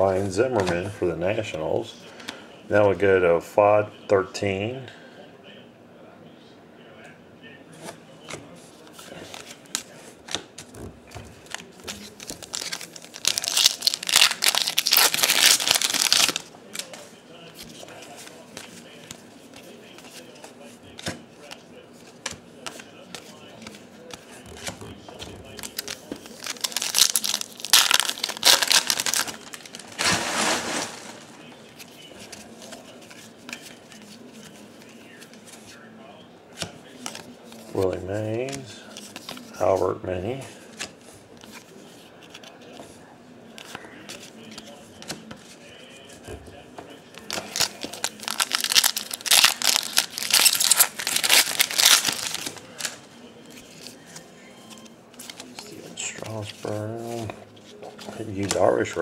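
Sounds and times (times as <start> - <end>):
cards being handled: 7.8 - 35.8, 36.5 - 39.8, 40.6 - 46.2, 47.1 - 59.0
foil wrapper tearing and crinkling: 12.3 - 16.4, 25.5 - 31.2, 47.3 - 52.9.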